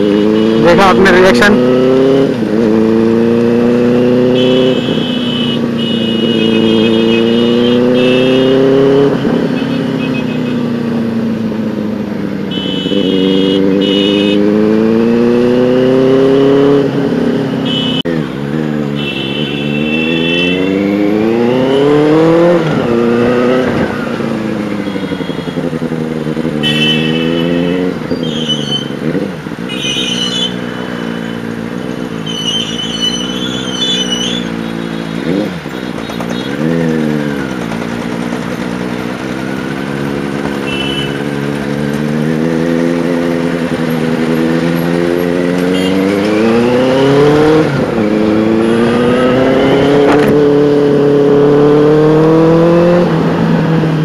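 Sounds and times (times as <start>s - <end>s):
motorcycle engine accelerating: 0.0s - 5.1s, 6.0s - 54.0s
sharp engine rev: 39.2s - 53.2s.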